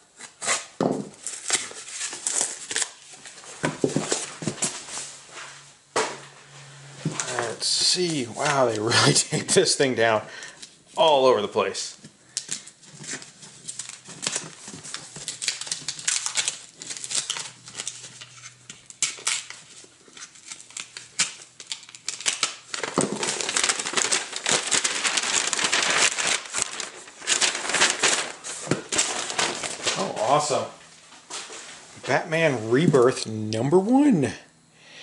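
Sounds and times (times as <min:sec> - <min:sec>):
paper envelope rustling: 0:01.2 - 0:05.1, 0:07.0 - 0:09.0, 0:12.4 - 0:31.8.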